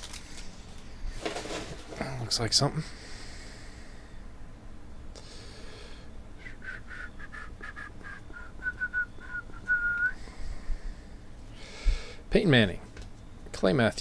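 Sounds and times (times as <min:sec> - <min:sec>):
person whistling: 0:06.4 - 0:10.3.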